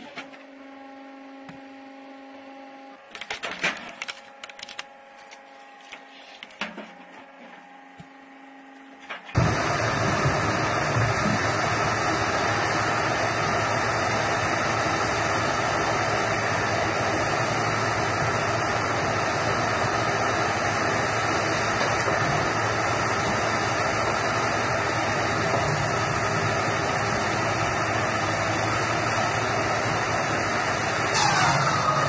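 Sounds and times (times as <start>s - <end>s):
log-processing machine running: 9.3s - 32.0s.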